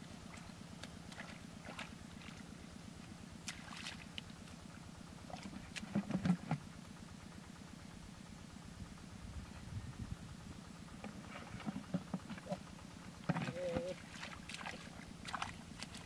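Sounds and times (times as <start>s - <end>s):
low engine drone: 0.0s - 16.0s
hands splashing in wet mud: 0.3s - 2.4s, 3.4s - 4.2s, 13.5s - 16.0s.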